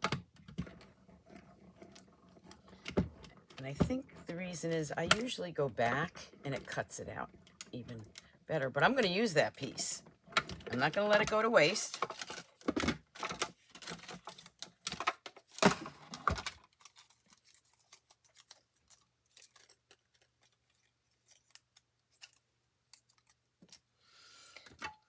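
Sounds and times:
paper rustling: 11.2 - 23.8.

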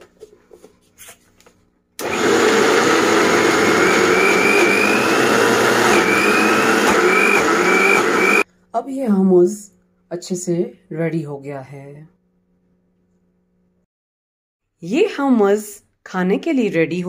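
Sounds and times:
mixer grinder motor whining: 2.0 - 8.4.

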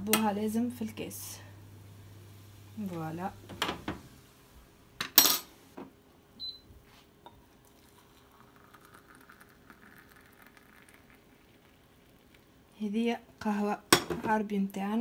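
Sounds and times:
cup and saucepan clinking: 5.0 - 5.5
coffee trickling into cup: 7.3 - 12.7.

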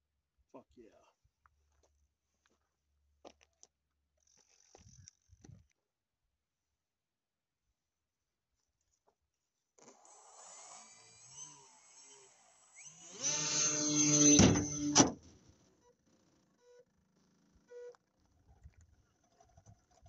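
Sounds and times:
small electric motor whirring: 9.8 - 15.2
faint wavering whine: 10.5 - 15.0.

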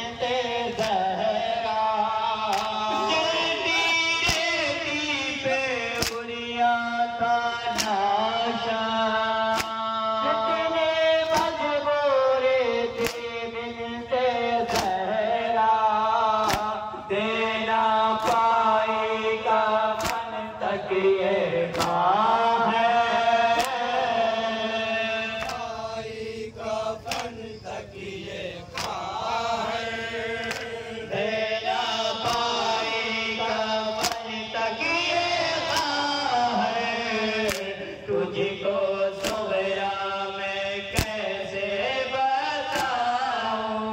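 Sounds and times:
men chanting a lament: 0.0 - 43.9
hands beating on chests: 6.0 - 6.3, 16.4 - 16.8, 19.9 - 20.4, 34.0 - 34.3.

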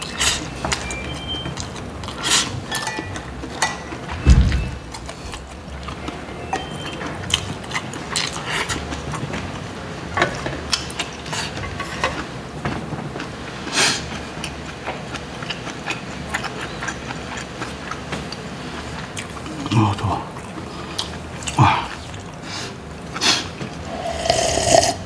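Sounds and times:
low thump: 4.2 - 4.8.

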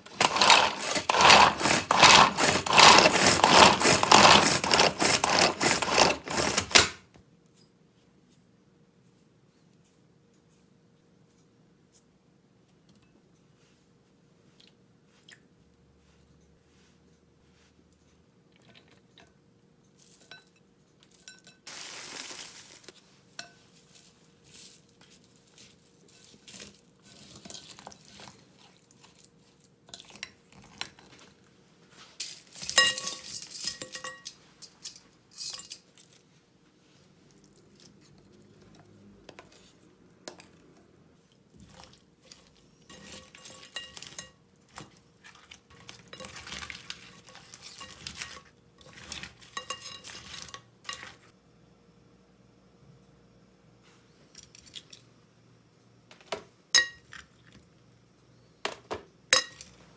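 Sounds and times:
spoon and chopsticks scraping bowl: 0.1 - 6.9, 23.4 - 29.2, 32.2 - 36.1, 41.6 - 51.3.

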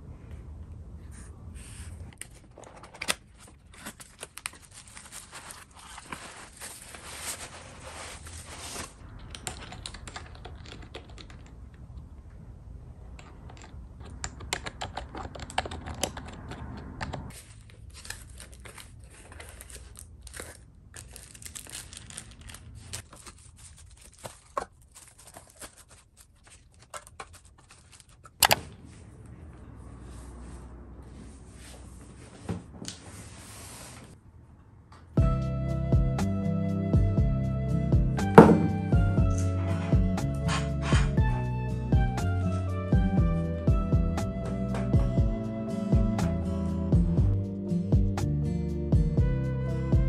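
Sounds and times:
plastic wrap crinkling: 3.1 - 9.0, 17.3 - 28.4
cardboard being torn open: 17.4 - 28.2
sharp knock: 38.4 - 38.8.

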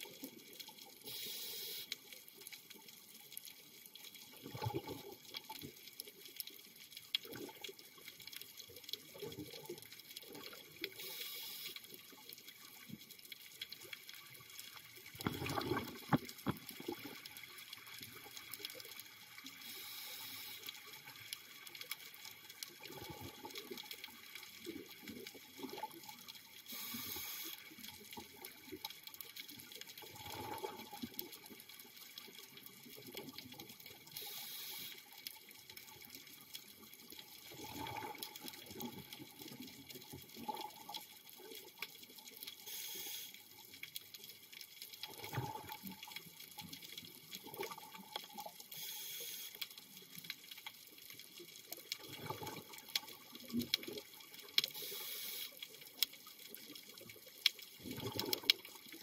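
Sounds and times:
regulator breathing hiss: 1.1 - 1.9, 11.0 - 11.8, 19.6 - 20.7, 26.7 - 27.6, 34.2 - 35.0, 42.6 - 43.4, 48.8 - 49.6, 54.7 - 55.6
exhaled bubbles bursting: 15.1 - 17.2, 30.0 - 31.2, 37.5 - 39.1, 45.1 - 46.1, 52.0 - 54.1, 57.8 - 58.9.

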